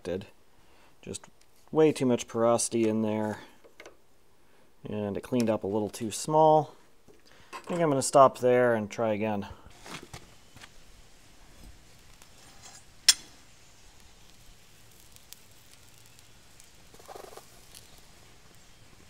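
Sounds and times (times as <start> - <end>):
molten metal crackling hiss: 9.6 - 19.0.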